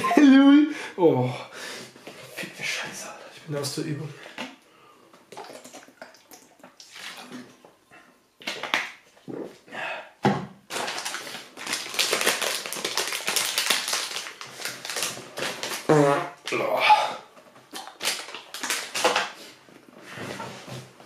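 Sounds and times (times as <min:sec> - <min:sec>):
gulping water from bottle: 0:05.3 - 0:07.6.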